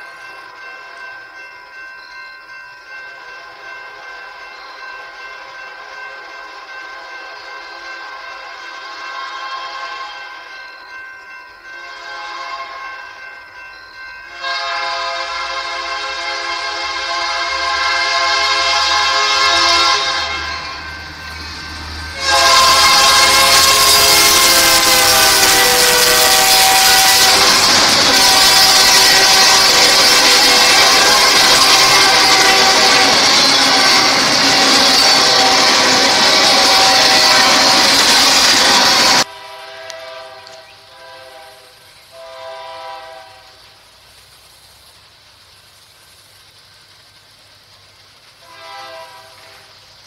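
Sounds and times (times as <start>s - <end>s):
rumble of passing train cars: 0.0s - 50.0s
train horn chord: 6.6s - 10.6s, 11.6s - 13.3s, 14.3s - 43.8s, 48.4s - 49.8s.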